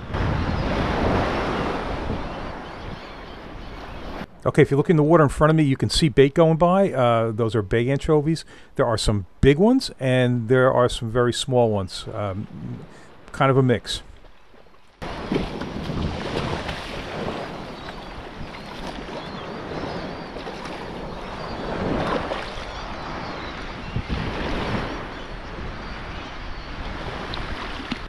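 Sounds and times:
wind buffeting microphone: 0:00.0 - 0:04.3, 0:12.0 - 0:13.2, 0:15.0 - 0:28.0
surf sloshing around legs: 0:14.1 - 0:23.1.

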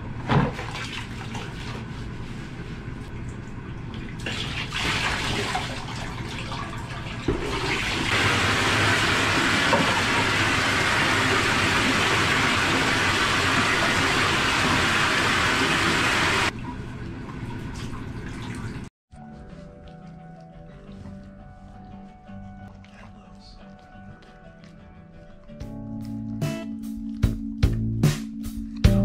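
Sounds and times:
faucet running into a pot: 0:04.6 - 0:16.5.

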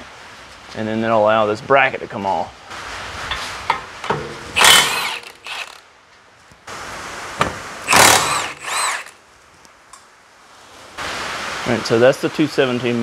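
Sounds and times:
cordless power tool whining: 0:04.6 - 0:05.8, 0:07.9 - 0:09.2.

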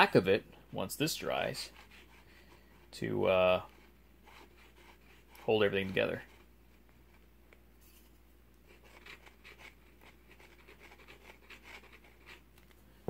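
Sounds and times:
glue nozzle scratching wood: 0:01.2 - 0:07.3, 0:08.6 - 0:12.5.

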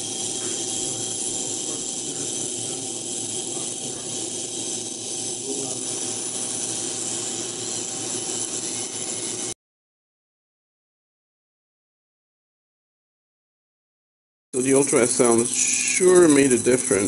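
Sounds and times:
faint humming tones: 0:00.0 - 0:09.6
ultrasonic cleaner hissing: 0:00.0 - 0:09.6, 0:14.6 - 0:17.0.

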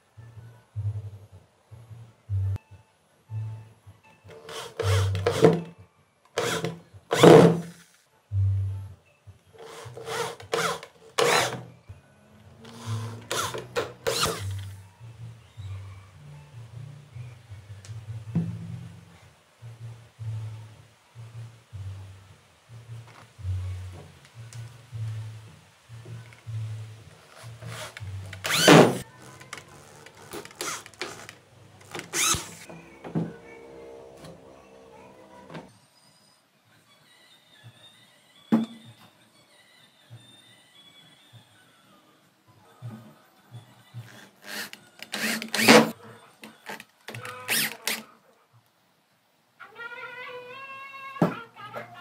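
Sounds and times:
electric drill drilling into wood: 0:04.3 - 0:05.7, 0:06.4 - 0:07.7, 0:09.6 - 0:11.7, 0:12.7 - 0:14.7, 0:27.7 - 0:29.0, 0:30.2 - 0:32.7, 0:44.1 - 0:45.9, 0:47.5 - 0:48.0.

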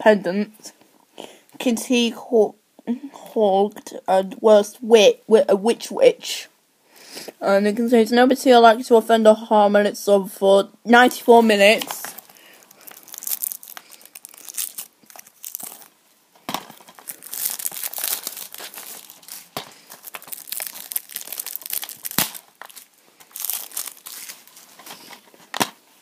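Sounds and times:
plastic shrink-wrap crinkling: 0:11.2 - 0:25.8.

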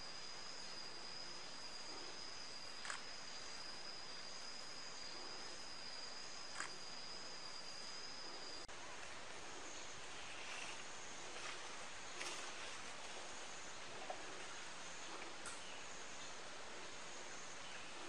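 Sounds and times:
high-pitched insect drone: 0:00.0 - 0:08.7
faint forest background: 0:00.0 - 0:18.0.

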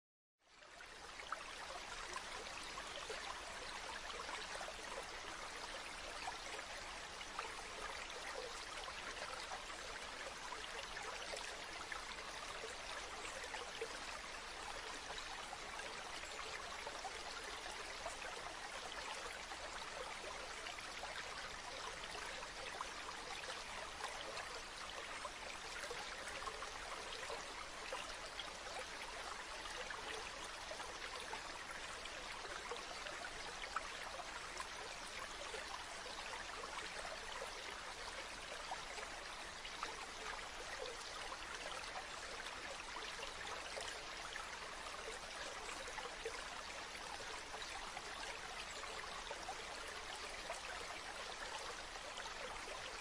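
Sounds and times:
stream flowing: 0:00.5 - 0:53.0.

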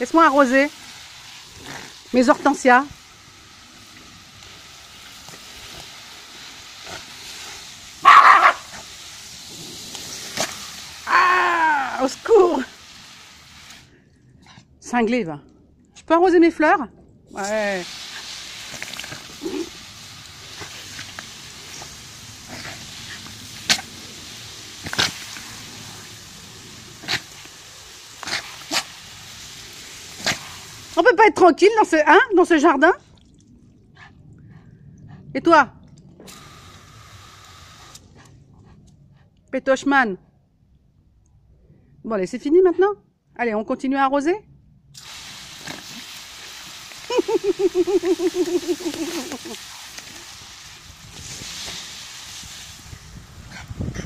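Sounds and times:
garden hose spray hissing: 0:00.0 - 0:14.0, 0:17.3 - 0:32.6, 0:36.2 - 0:38.3, 0:45.0 - 0:54.0
dog barking: 0:08.0 - 0:08.8
dog snapping at water: 0:24.8 - 0:25.5
hose nozzle spray hissing: 0:45.0 - 0:52.9.

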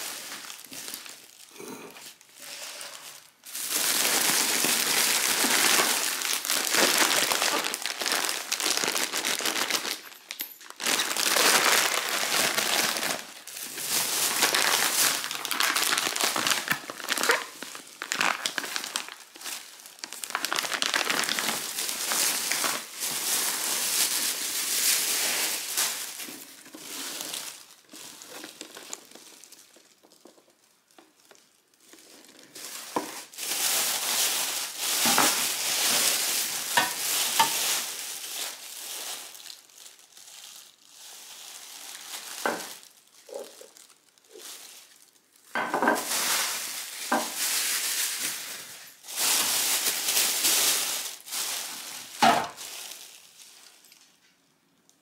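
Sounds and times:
plastic bags crinkling: 0:00.0 - 0:55.0.

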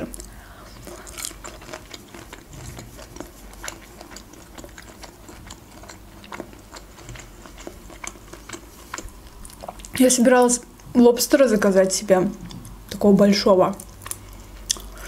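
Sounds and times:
person chewing: 0:00.0 - 0:10.0, 0:13.8 - 0:15.0
wet mouth clicks: 0:13.8 - 0:15.0.

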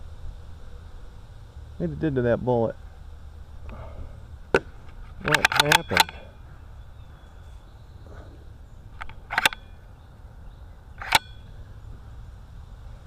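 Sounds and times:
rifle handling clicks: 0:05.2 - 0:06.2, 0:09.0 - 0:09.7, 0:11.0 - 0:11.3.

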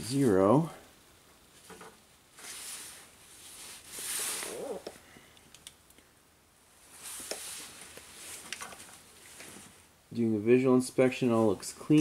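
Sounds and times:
hands rustling: 0:02.4 - 0:05.2, 0:06.9 - 0:09.9
small clicks: 0:05.3 - 0:06.0.

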